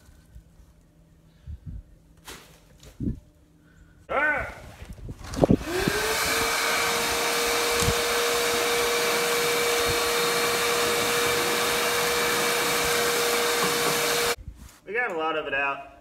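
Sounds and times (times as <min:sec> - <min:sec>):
shop vacuum motor whining: 0:05.2 - 0:14.4
nozzle knocking: 0:07.8 - 0:14.3.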